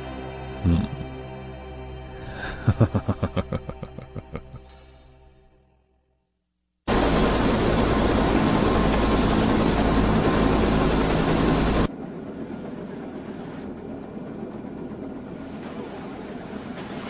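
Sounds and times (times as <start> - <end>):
helicopter rotor and engine: 6.9 - 17.0.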